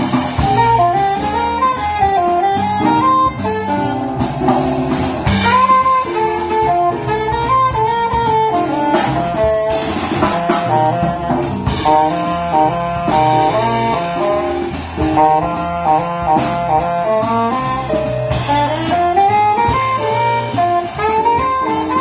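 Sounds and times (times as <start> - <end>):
drum kit with cymbals: 0.0 - 22.0
plucked upright bass: 0.0 - 22.0
saxophone melody: 0.0 - 22.0.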